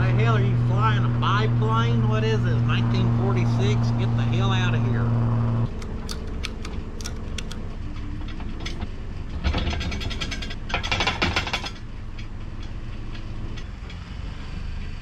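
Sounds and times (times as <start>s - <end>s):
low steady rumble: 0.0s - 13.9s
ratchet strap clicking: 5.7s - 7.6s.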